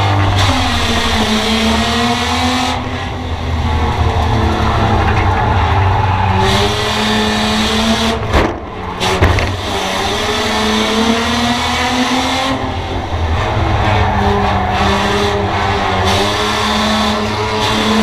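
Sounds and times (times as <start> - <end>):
race car engine from inside: 0.0 - 18.0
sharp knocks: 8.2 - 9.8.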